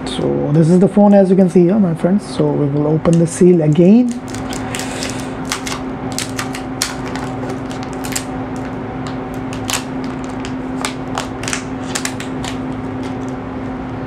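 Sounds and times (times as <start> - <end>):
steady low hum: 0.0 - 14.0
plastic wrap crinkling: 3.7 - 13.4.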